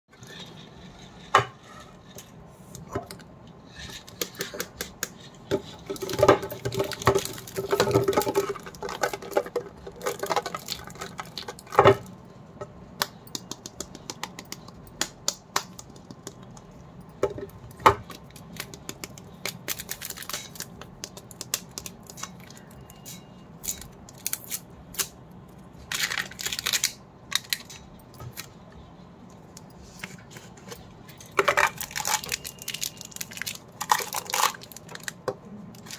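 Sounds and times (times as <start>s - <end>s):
plastic wrap crinkling: 18.1s - 22.8s, 25.8s - 27.8s, 31.4s - 35.9s.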